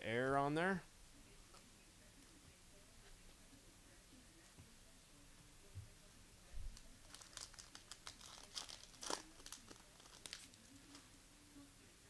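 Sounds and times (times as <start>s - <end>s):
foil wrapper tearing and crinkling: 7.0s - 11.0s.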